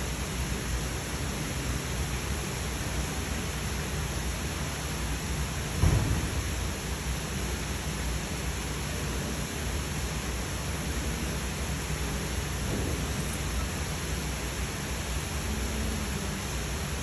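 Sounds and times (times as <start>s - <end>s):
steady rushing noise: 0.0s - 17.0s
brief low thump: 5.8s - 6.7s.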